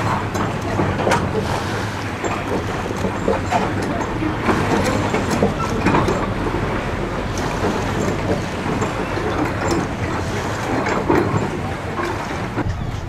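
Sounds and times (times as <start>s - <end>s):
wind noise on microphone: 4.4s - 13.0s.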